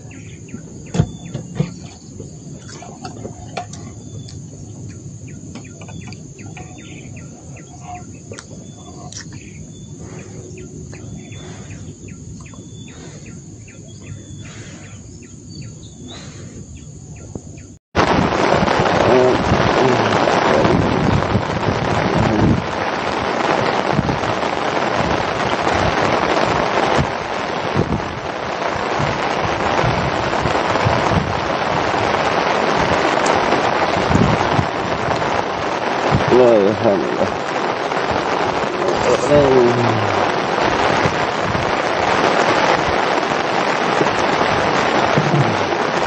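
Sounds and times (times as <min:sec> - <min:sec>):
high insect trill: 0:00.0 - 0:17.7
wind buffeting microphone: 0:00.0 - 0:46.0.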